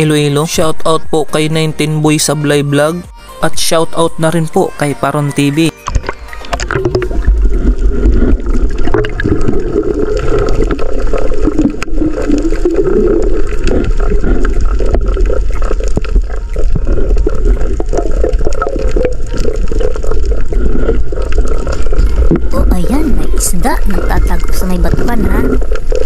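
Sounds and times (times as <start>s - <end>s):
underwater gurgling and bubbling: 5.4s - 26.0s.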